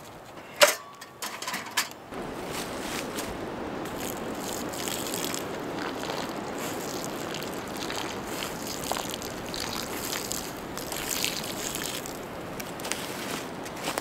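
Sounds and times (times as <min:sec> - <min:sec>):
storm wind rushing: 0:02.1 - 0:06.8
faint ticks and crackles: 0:03.0 - 0:14.0.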